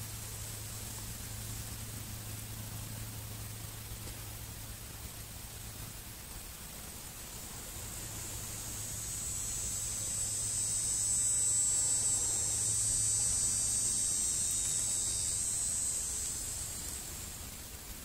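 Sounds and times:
insect buzzing: 0:06.7 - 0:18.0.

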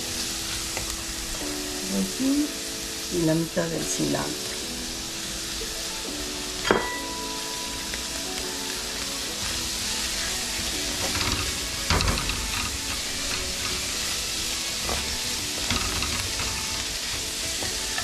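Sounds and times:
vegetables sizzling in oil: 0:00.0 - 0:18.0.

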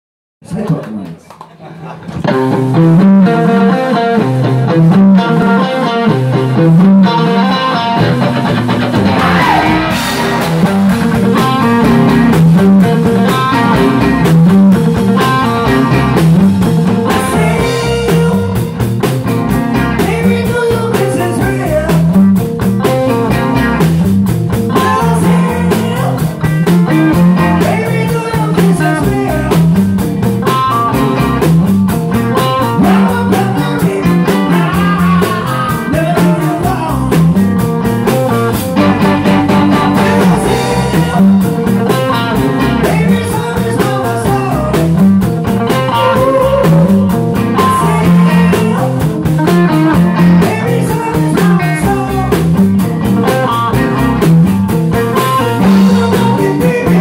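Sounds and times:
electric guitars: 0:01.8 - 0:57.0
bass guitar: 0:02.0 - 0:57.0
drums and cymbals: 0:08.1 - 0:57.0
man singing: 0:09.0 - 0:10.1, 0:16.9 - 0:18.8, 0:19.7 - 0:23.8, 0:24.6 - 0:30.7, 0:32.3 - 0:53.6, 0:55.1 - 0:57.0.

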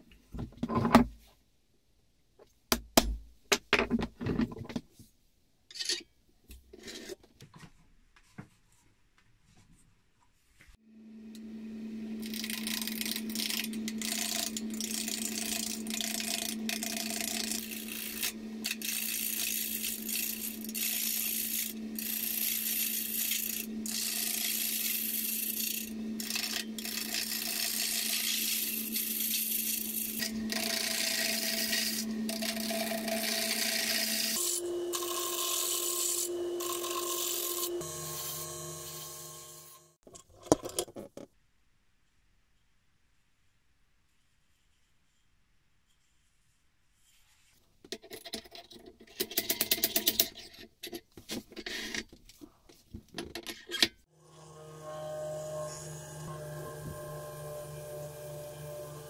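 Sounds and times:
gouge scraping spinning wood: 0:12.2 - 0:39.6
lathe motor humming: 0:54.2 - 0:59.0.

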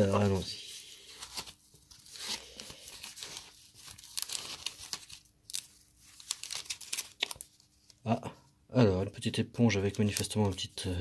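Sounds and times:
foam and plastic crinkling: 0:00.0 - 0:08.0.

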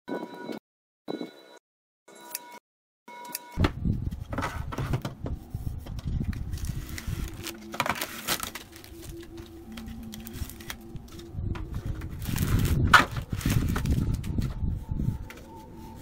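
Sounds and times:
paper label rustling: 0:06.0 - 0:14.6.

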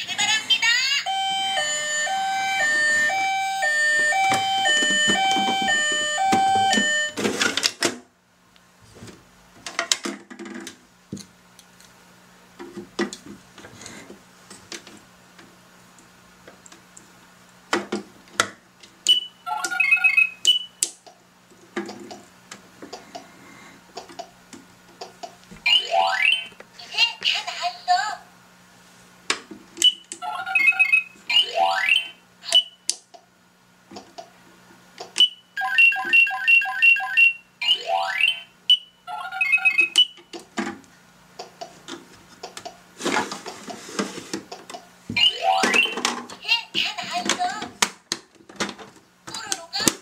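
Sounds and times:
toy two-tone siren: 0:01.0 - 0:07.2, 0:35.2 - 0:38.5, 0:39.3 - 0:40.2.

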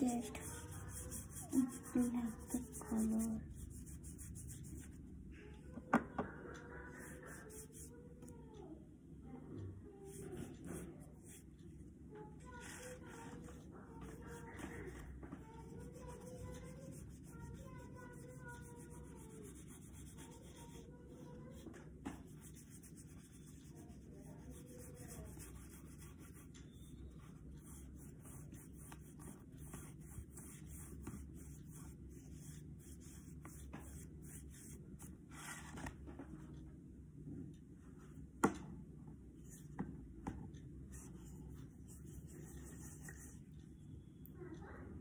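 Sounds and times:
paintbrush rubbing on paper: 0:00.0 - 0:05.0, 0:07.0 - 0:08.0, 0:12.5 - 0:35.7.

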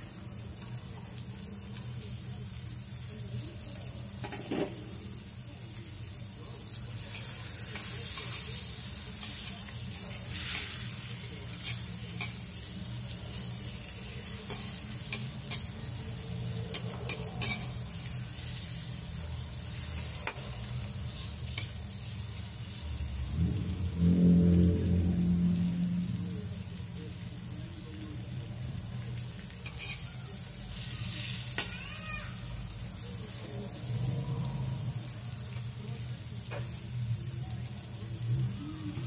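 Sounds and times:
onions sizzling in butter: 0:00.0 - 0:39.0
spatula clicking against pan: 0:16.7 - 0:17.7.

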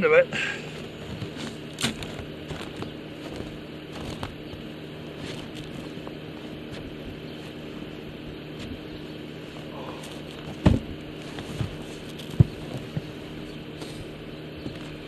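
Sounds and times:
steady low hum: 0:00.0 - 0:15.0
snow shovel scraping snow: 0:00.4 - 0:04.4, 0:05.1 - 0:07.8, 0:11.2 - 0:15.0.

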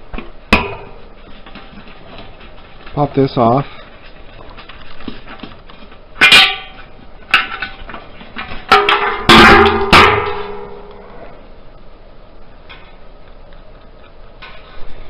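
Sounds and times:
metallic knocks on steel: 0:08.7 - 0:10.9.

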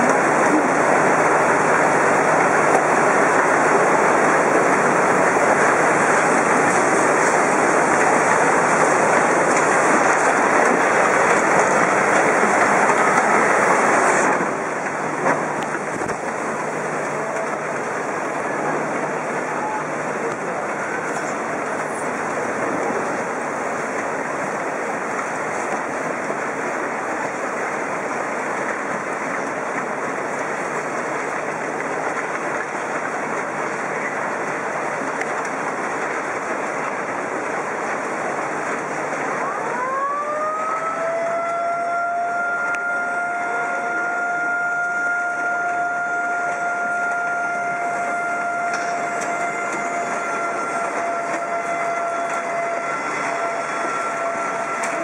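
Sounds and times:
floodwater rushing: 0:00.0 - 0:55.0
siren: 0:39.3 - 0:55.0.

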